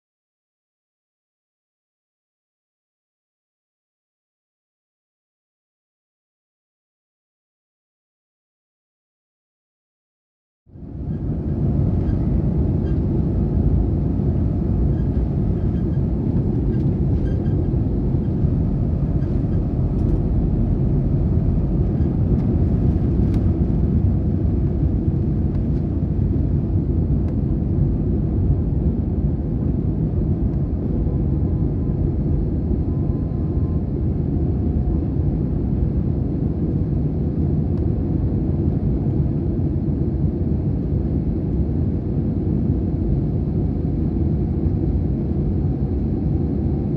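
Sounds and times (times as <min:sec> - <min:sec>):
jet engines rumbling in cabin: 0:10.7 - 0:46.9.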